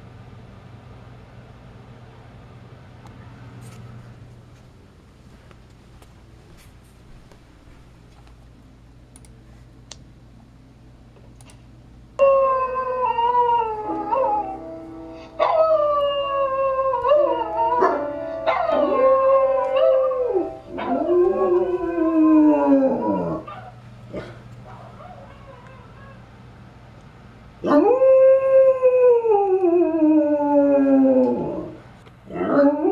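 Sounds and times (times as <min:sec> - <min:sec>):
dog howling: 0:12.2 - 0:26.2, 0:27.6 - 0:32.9
held piano notes: 0:13.8 - 0:22.5.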